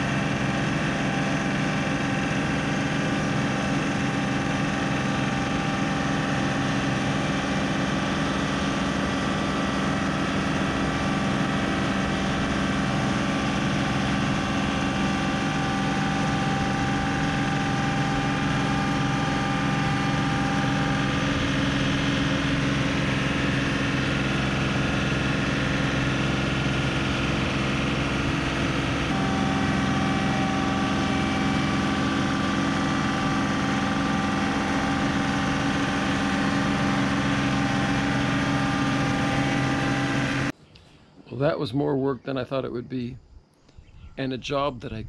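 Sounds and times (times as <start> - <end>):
tractor diesel engine running: 0.0 - 40.6.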